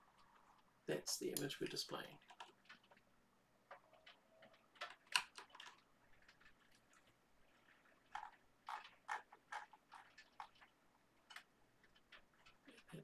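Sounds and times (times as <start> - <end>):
keyboard and mouse clicking: 1.3 - 3.0, 3.7 - 7.0, 8.1 - 13.0.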